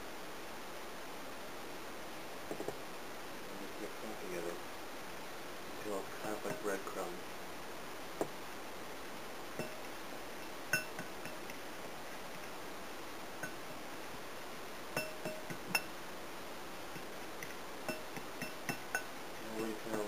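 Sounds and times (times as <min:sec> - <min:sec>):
hand clinking against bowl: 0:06.4 - 0:06.7, 0:09.6 - 0:09.8, 0:10.7 - 0:11.5, 0:15.0 - 0:15.9, 0:17.9 - 0:20.0.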